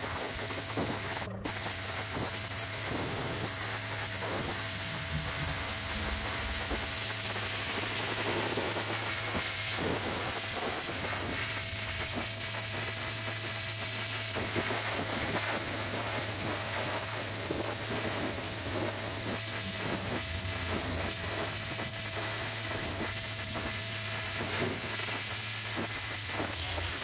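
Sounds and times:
low machine hum: 0:00.0 - 0:27.0
pressure washer spraying: 0:00.0 - 0:27.0.

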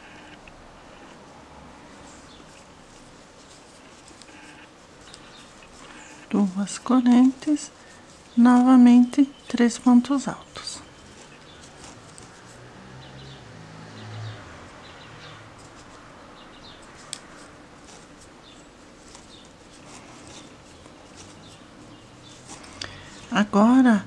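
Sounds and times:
crochet hook scratching yarn: 0:02.0 - 0:12.7, 0:16.8 - 0:23.4.

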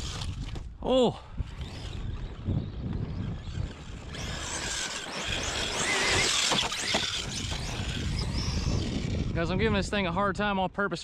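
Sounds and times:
tyres tearing through dirt: 0:00.0 - 0:00.8, 0:01.5 - 0:09.4
electric motor whining: 0:01.4 - 0:09.6.

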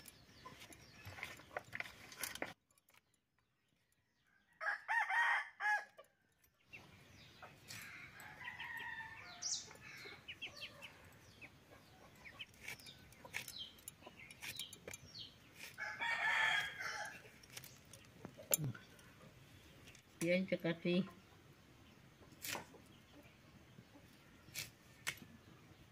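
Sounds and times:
small birds chirping: 0:00.0 - 0:04.5, 0:06.0 - 0:25.9
chickens clucking: 0:00.2 - 0:02.0, 0:06.6 - 0:20.1, 0:20.8 - 0:25.8
blade cutting gourd clicks: 0:12.5 - 0:15.8.

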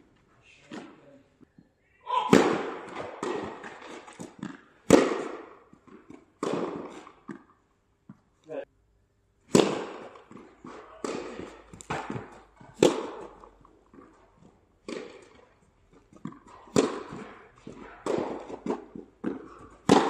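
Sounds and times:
racket striking tennis ball: 0:02.1 - 0:08.2, 0:09.5 - 0:20.0
ball bouncing on court: 0:02.3 - 0:07.5, 0:09.5 - 0:14.2, 0:16.1 - 0:20.0.

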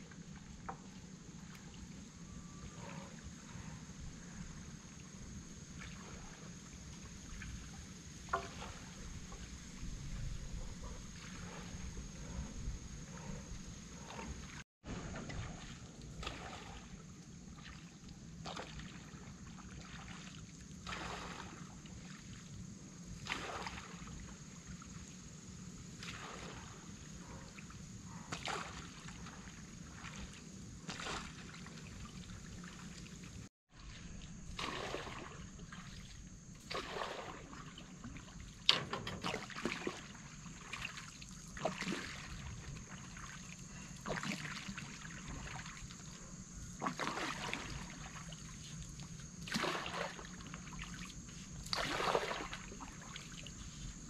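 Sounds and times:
pole splashing through water: 0:08.3 - 0:09.4, 0:14.1 - 0:21.7, 0:23.2 - 0:24.1, 0:26.0 - 0:26.8, 0:28.3 - 0:33.0, 0:33.8 - 0:46.0, 0:46.8 - 0:48.6, 0:49.4 - 0:53.5.

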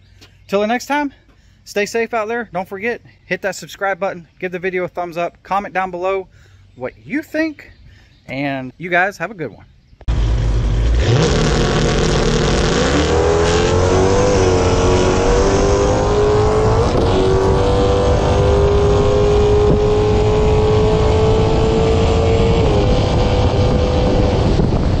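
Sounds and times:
racing engine at full throttle: 0:10.1 - 0:25.0.

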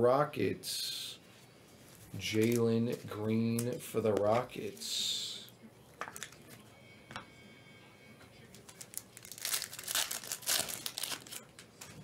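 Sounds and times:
plastic wrapper crinkling and tearing: 0:01.9 - 0:04.9, 0:06.1 - 0:06.4, 0:08.5 - 0:11.9.

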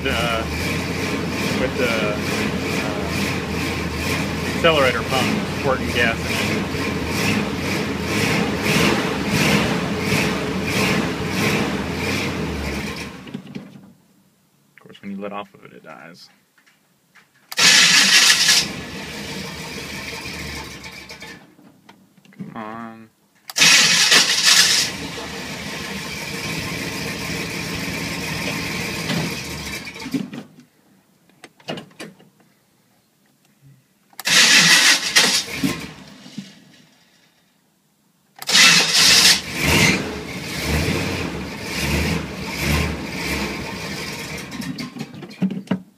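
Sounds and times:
car engine surging: 0:00.0 - 0:13.4, 0:17.6 - 0:21.4, 0:23.6 - 0:30.2, 0:34.2 - 0:36.4, 0:38.4 - 0:44.8
starter cranking engine: 0:17.5 - 0:21.4, 0:23.5 - 0:26.3, 0:34.2 - 0:36.0, 0:38.4 - 0:40.0.

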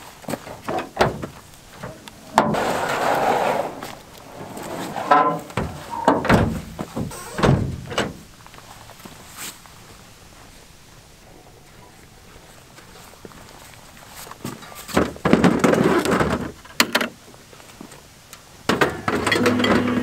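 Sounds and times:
plastic sled scraping: 0:01.9 - 0:05.9, 0:15.2 - 0:16.6
tailgate dropping open: 0:04.3 - 0:08.2.

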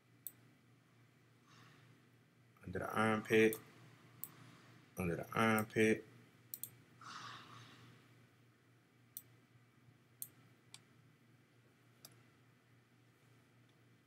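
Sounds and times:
faint steady hum: 0:00.0 - 0:14.0
computer mouse clicks: 0:06.5 - 0:06.8.

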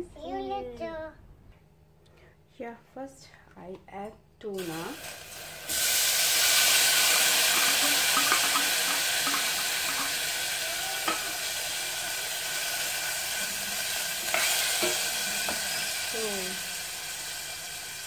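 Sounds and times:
tuna sizzling in a pot: 0:04.6 - 0:18.0.

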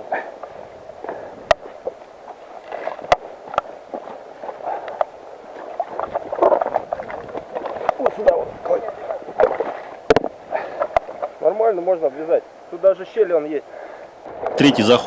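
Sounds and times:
river gurgling over stones: 0:00.0 - 0:12.7
cobbles knocking underfoot: 0:06.1 - 0:11.3.

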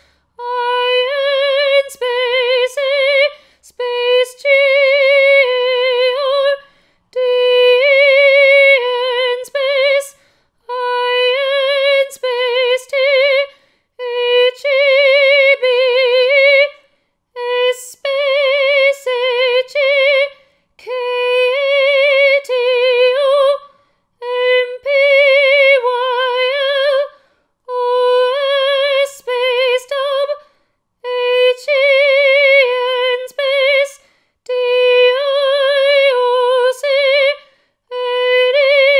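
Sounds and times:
singer breathing: 0:00.0 - 0:00.4, 0:03.4 - 0:03.7, 0:06.6 - 0:07.1, 0:10.2 - 0:10.6, 0:13.5 - 0:14.0, 0:27.1 - 0:27.6, 0:34.0 - 0:34.4, 0:37.4 - 0:37.8
woman singing with vibrato: 0:00.0 - 0:38.9.

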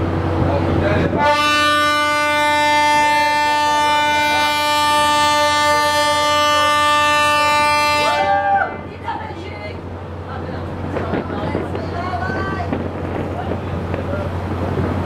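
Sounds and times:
ship horn blast: 0:01.0 - 0:08.9.

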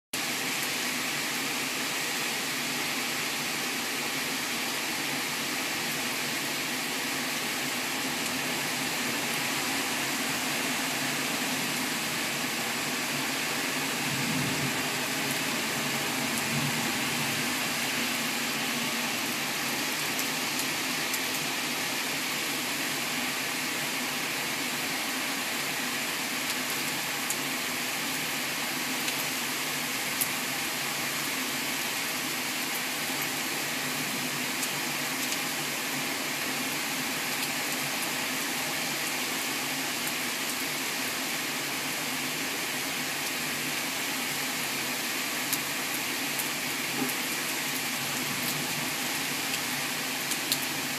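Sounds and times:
torrential rain pouring: 0:00.2 - 0:50.9.

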